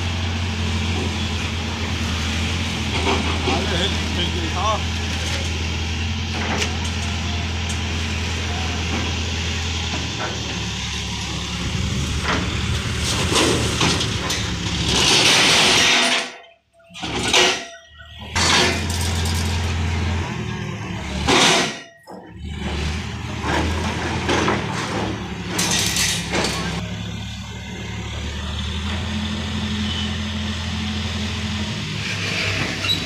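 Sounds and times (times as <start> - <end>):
tractor diesel engine idling: 0.0 - 12.9, 26.2 - 32.0.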